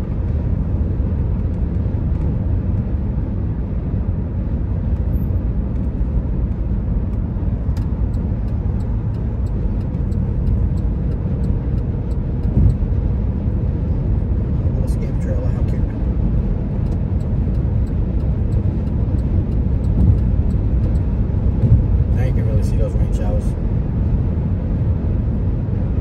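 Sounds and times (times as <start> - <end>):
road and wind noise inside car: 0.0 - 26.0.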